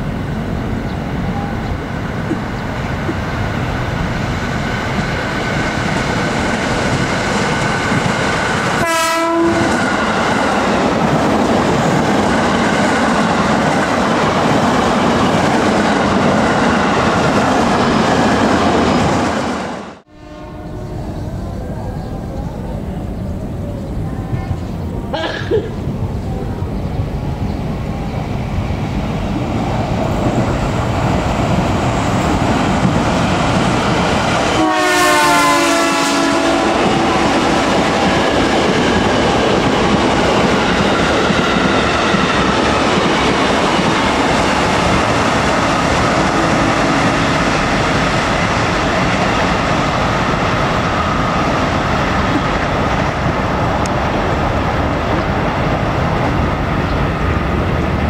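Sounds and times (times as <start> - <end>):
train wheels on rails: 0.0 - 20.1, 20.7 - 58.0
train horn chord: 8.8 - 9.9, 20.0 - 21.2, 34.5 - 37.5.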